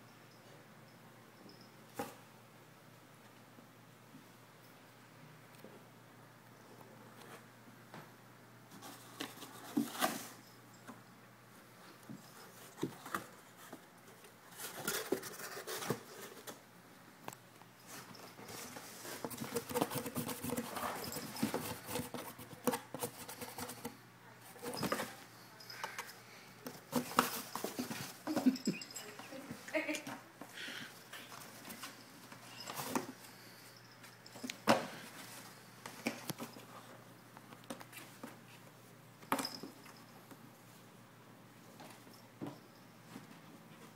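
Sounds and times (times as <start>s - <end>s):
cats scratching cardboard: 18.5s - 25.2s.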